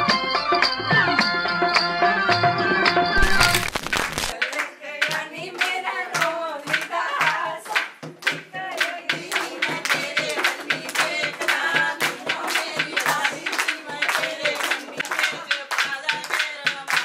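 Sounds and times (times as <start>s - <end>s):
rhythmic hand clapping: 3.2s - 17.0s
women singing folk song: 4.4s - 17.0s.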